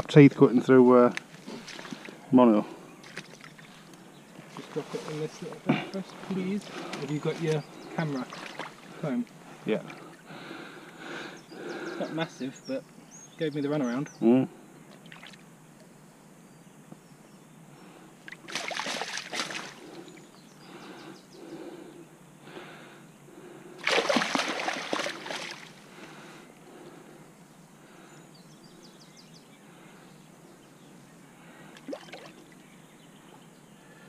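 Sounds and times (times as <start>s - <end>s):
fish splashing in water: 18.3s - 20.0s, 23.8s - 25.8s, 31.8s - 32.5s.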